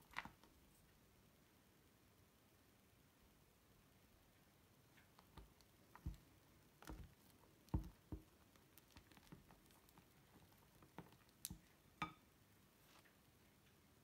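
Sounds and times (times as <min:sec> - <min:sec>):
soft squishes and light taps: 0:00.0 - 0:01.0, 0:04.4 - 0:13.8
spatula stirring slime: 0:04.8 - 0:12.3.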